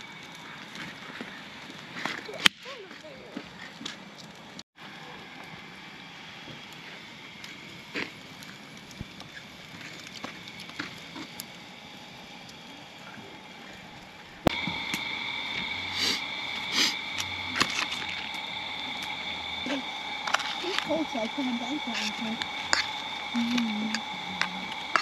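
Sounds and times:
campfire crackling and popping: 0.0 - 25.0.

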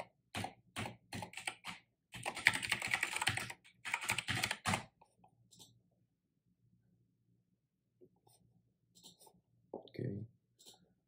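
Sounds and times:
typing on computer keyboard: 0.0 - 4.9.

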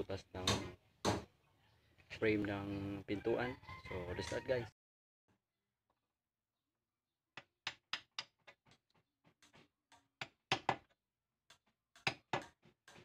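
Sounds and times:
hammer striking chisel into wood: 0.4 - 1.3, 9.4 - 10.9, 11.5 - 13.0.

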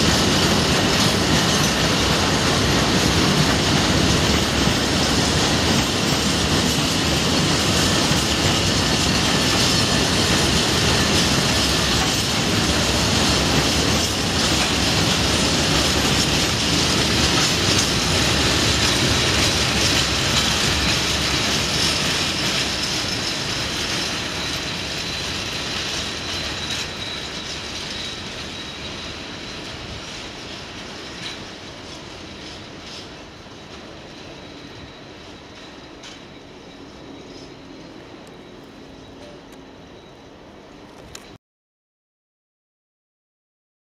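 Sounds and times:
train wheels rumbling on rail: 0.0 - 41.4
high wheel squeal: 5.9 - 40.5.

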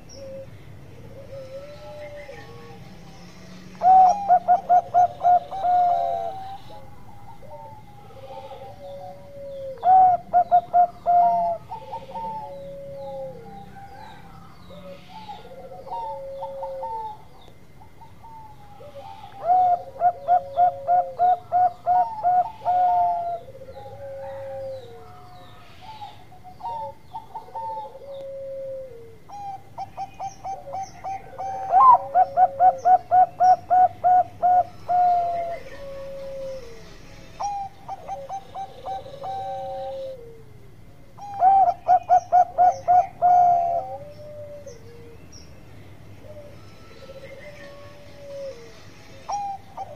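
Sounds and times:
dove cooing: 0.0 - 2.8, 3.8 - 45.3, 46.2 - 49.9.

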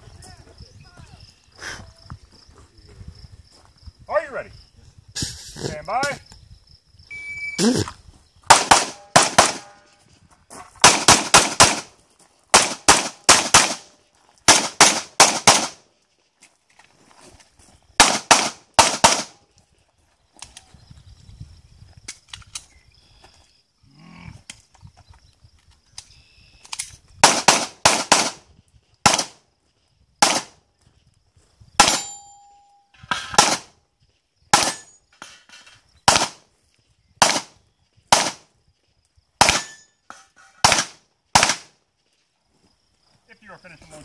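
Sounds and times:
pistol shots: 8.5 - 9.9, 10.8 - 11.9, 12.5 - 13.9, 14.5 - 15.8, 18.0 - 19.4, 27.2 - 28.4, 29.0 - 29.4, 30.2 - 30.6, 31.8 - 32.2, 33.1 - 33.7, 34.5 - 35.0, 36.0 - 36.4, 37.2 - 38.5, 39.4 - 41.7
brief ringing tone: 32.0 - 32.9.

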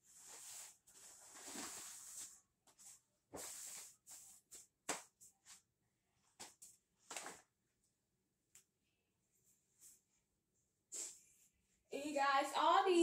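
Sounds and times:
clothing rustling: 0.0 - 5.7.

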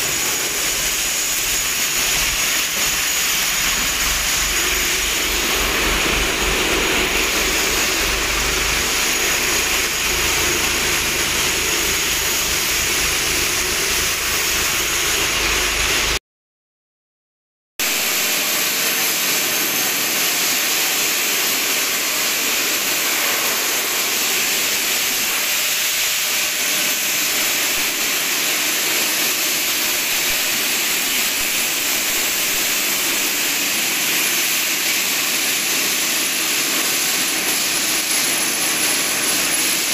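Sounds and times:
rushing hiss of air equipment: 0.0 - 16.1.

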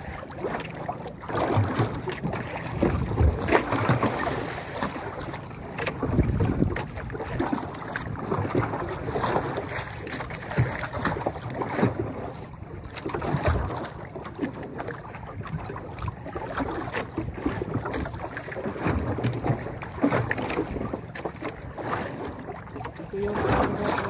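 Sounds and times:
waves slapping against boat: 0.0 - 24.0
wind buffeting microphone: 1.8 - 9.8.

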